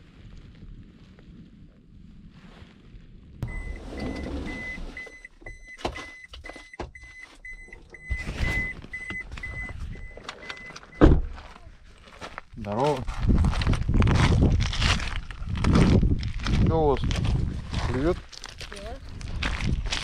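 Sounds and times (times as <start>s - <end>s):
vehicle warning chime beeping: 3.4s - 11.1s
loud thump: 11.0s - 11.4s.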